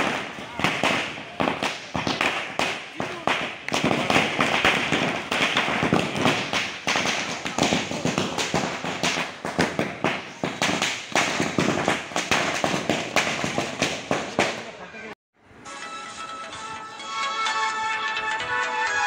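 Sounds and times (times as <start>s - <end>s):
firecrackers bursting: 0.0s - 14.8s.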